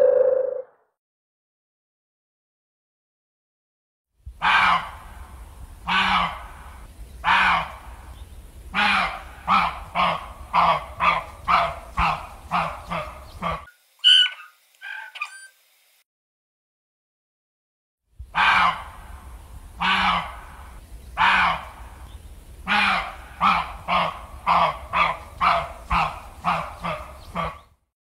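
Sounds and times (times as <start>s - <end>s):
animal honking calls: 8.8s - 15.4s
high chirps: 14.0s - 15.6s.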